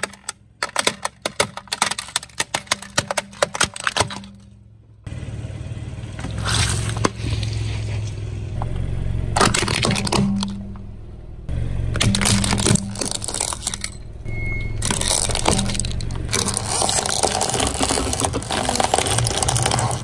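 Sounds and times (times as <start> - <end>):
plastic cracking and snapping: 0.0 - 4.5, 12.0 - 13.9, 14.8 - 20.0
car engine rumble: 0.0 - 20.0
crunch of crushed water beads: 12.1 - 13.9, 14.8 - 20.0.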